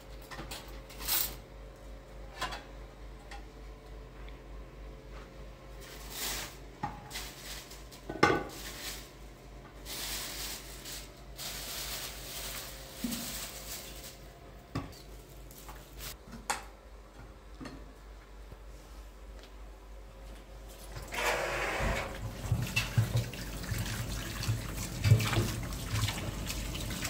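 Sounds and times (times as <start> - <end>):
scraping and rustling: 9.8 - 14.3.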